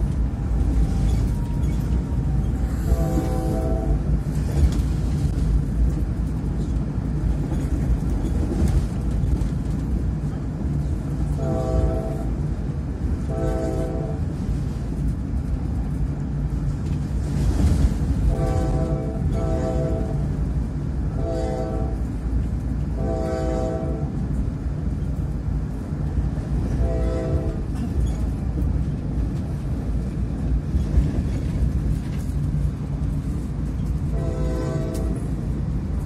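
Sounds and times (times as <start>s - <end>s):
train rumbling: 0.0s - 36.0s
train horn blasts: 2.6s - 4.2s, 11.3s - 12.4s, 13.2s - 14.4s, 18.2s - 20.4s, 21.1s - 22.1s, 22.9s - 24.4s, 26.7s - 27.9s, 34.1s - 35.4s.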